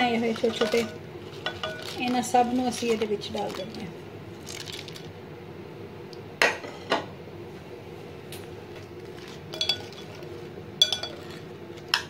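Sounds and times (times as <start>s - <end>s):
fried food being stirred: 0.0s - 5.2s, 8.8s - 12.0s
metal spoon clinking on glass bowl: 9.5s - 10.1s, 10.8s - 11.4s.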